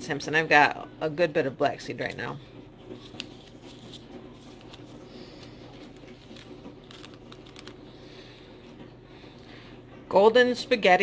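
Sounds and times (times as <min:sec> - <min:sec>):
paper and plastic rustling: 0:02.8 - 0:08.0.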